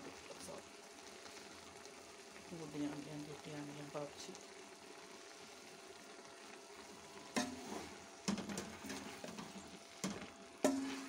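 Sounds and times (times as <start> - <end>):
faint sizzle: 0.0 - 11.0
spoon stirring in cooking pot: 7.3 - 11.0.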